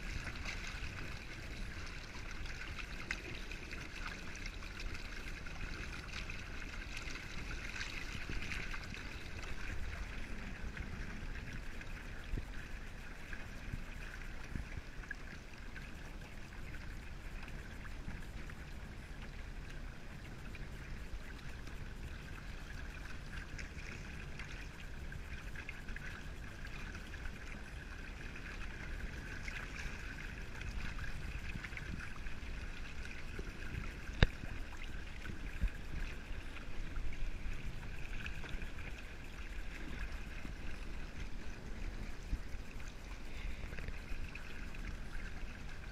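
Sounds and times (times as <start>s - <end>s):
water splashing along hulls: 0.0s - 45.9s.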